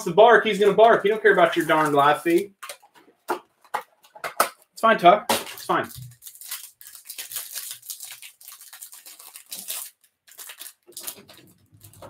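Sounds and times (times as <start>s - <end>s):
plastic wrapper crinkling and tearing: 0.8s - 3.0s, 5.4s - 12.0s.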